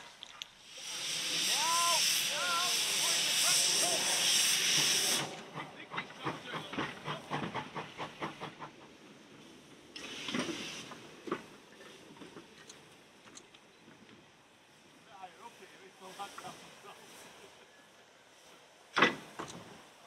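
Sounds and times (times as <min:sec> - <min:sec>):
steam hiss: 0:00.0 - 0:13.2, 0:14.5 - 0:20.0
steam locomotive exhaust beats: 0:00.4 - 0:13.2.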